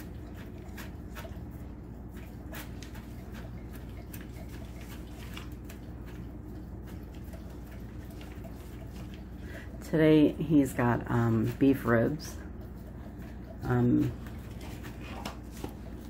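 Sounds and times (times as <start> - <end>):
dog eating wet clicks and smacks: 0.0 - 9.5.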